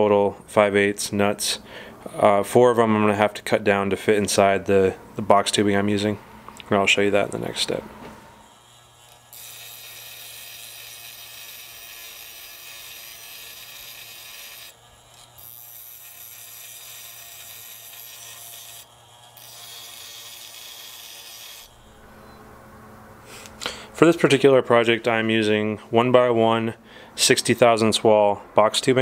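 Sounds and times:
grinder motor humming: 7.6 - 22.6
bench grinder grinding metal: 8.3 - 22.4.

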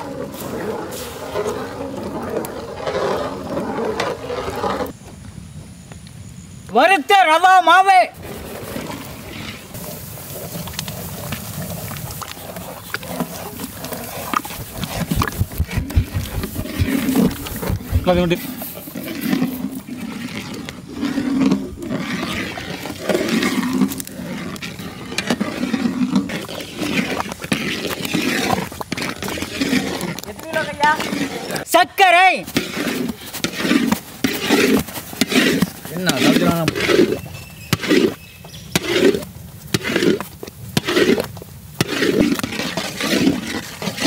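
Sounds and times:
paddle scraping and squelching in wok: 0.0 - 5.0, 8.2 - 44.0
thick liquid bubbling in a pot: 9.7 - 31.7, 38.8 - 44.0.

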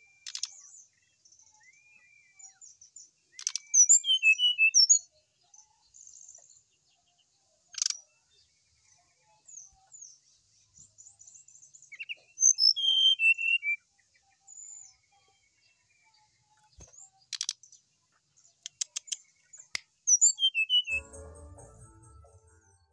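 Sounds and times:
sharp ticks: 18.6 - 19.2
bird singing high notes: 20.1 - 22.9.

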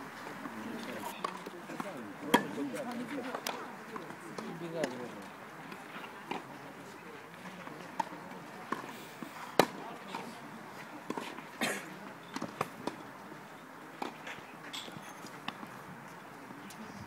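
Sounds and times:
tennis balls bouncing on clay: 0.3 - 8.9, 9.6 - 10.4, 11.1 - 13.1, 13.9 - 16.8
tennis balls struck by rackets: 0.4 - 6.5, 7.3 - 8.9, 9.5 - 10.4, 11.0 - 13.1, 13.9 - 15.8.

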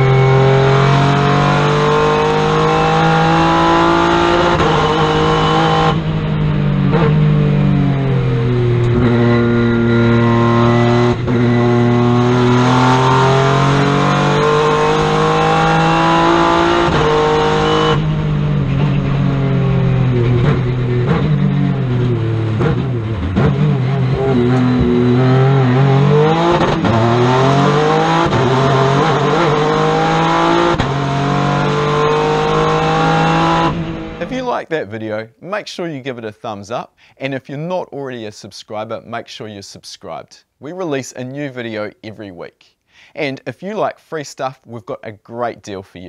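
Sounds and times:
turbo car engine accelerating: 0.0 - 34.4.

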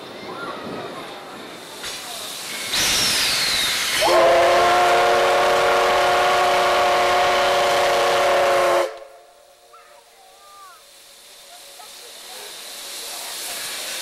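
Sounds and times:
steam hiss: 0.0 - 14.0
steam locomotive whistle blast: 3.0 - 9.3.

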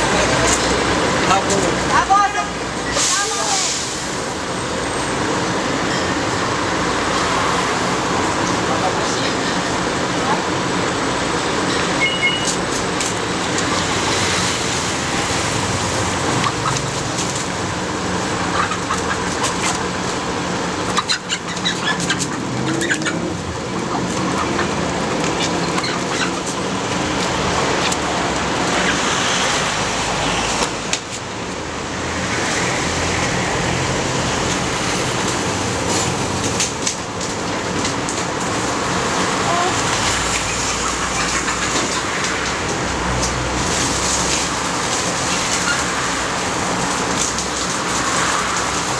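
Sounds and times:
street traffic noise: 0.0 - 48.9
chickens clucking: 15.6 - 29.6, 34.4 - 48.8.

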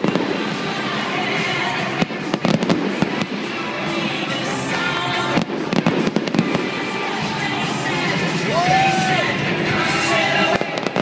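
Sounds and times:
fireworks bangs and crackles: 0.0 - 7.5, 10.2 - 11.0
music playing: 0.0 - 11.0.

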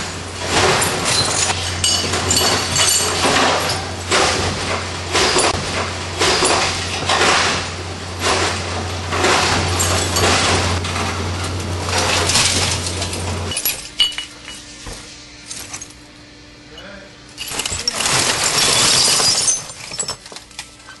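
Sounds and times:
glass crunching and shattering: 0.4 - 4.5, 11.9 - 14.5, 17.4 - 20.7
broken glass clinking and rattling: 0.5 - 4.4, 17.4 - 20.6.

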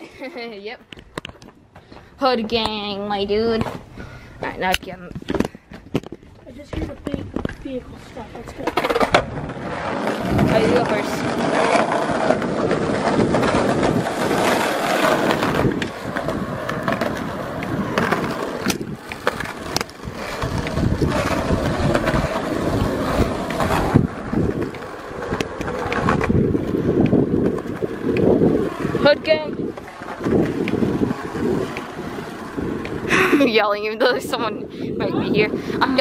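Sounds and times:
skateboard wheels rolling on asphalt: 0.0 - 36.0
skateboard sharp clacks: 8.5 - 33.1.

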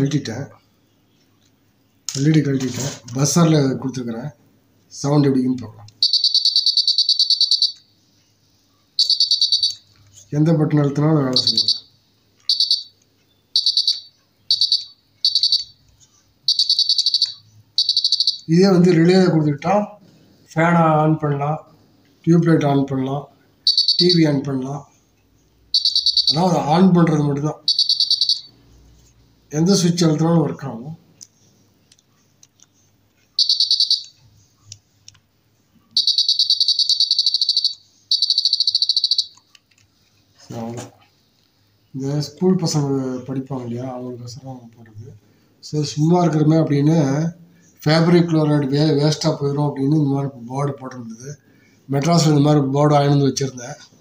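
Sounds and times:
piezo buzzer beeping: 6.0 - 7.9, 9.0 - 9.8, 11.3 - 15.8, 16.4 - 18.7, 23.6 - 24.4, 25.7 - 28.6, 33.4 - 34.3, 36.0 - 39.5.

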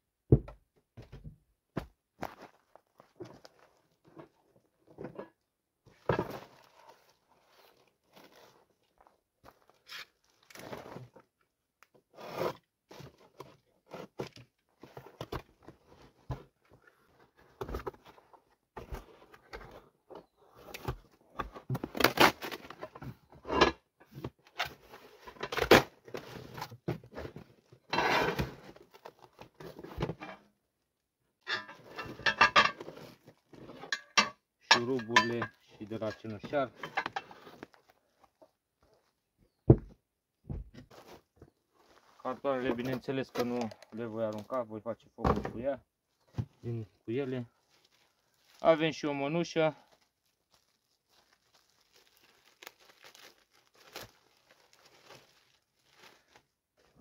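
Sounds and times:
plastic and cardboard rustling: 40.6 - 44.8, 46.1 - 57.0.

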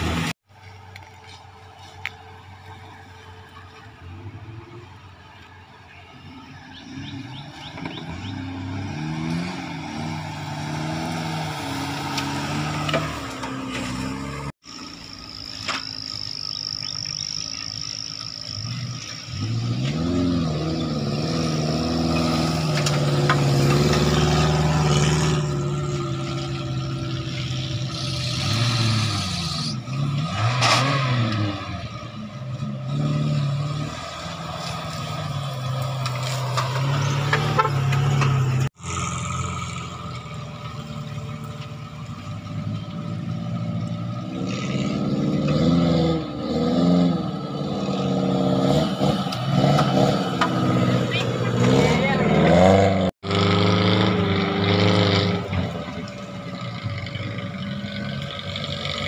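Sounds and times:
off-road engines revving: 0.0 - 0.4, 1.2 - 59.0.

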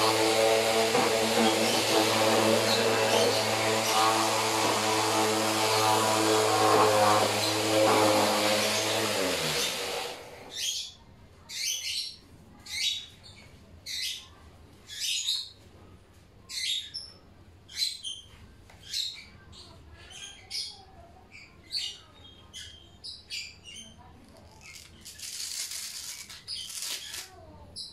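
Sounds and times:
orbital sander winding down: 0.0 - 10.5.

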